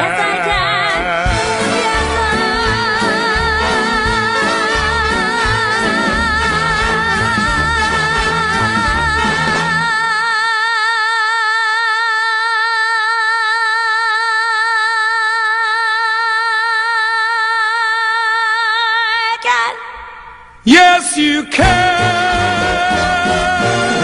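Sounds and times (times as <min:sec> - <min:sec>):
backing band: 0:00.0 - 0:10.0, 0:21.6 - 0:24.0
woman singing a long high note: 0:00.0 - 0:20.1.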